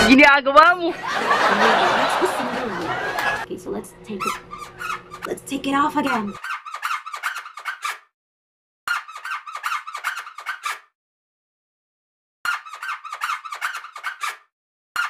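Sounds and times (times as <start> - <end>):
tissue squeaking on lips: 4.2 - 5.3, 6.0 - 8.1, 8.9 - 10.9, 12.5 - 15.0.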